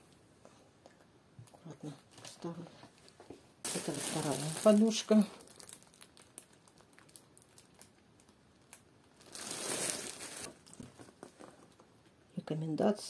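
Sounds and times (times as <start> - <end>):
plastic wrapping crinkling: 2.1 - 11.9.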